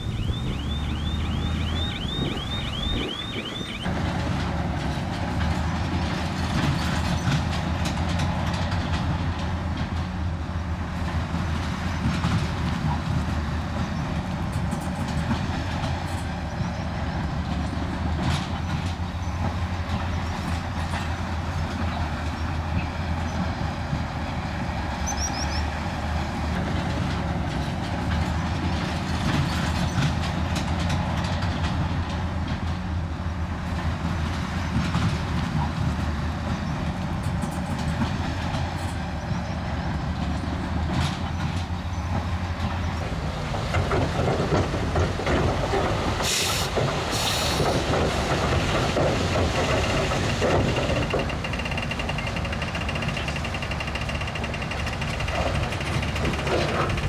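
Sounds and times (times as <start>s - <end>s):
diesel engine under load: 0.0s - 57.0s
steel tracks clanking: 0.0s - 57.0s
high rapid chirping: 0.1s - 3.9s.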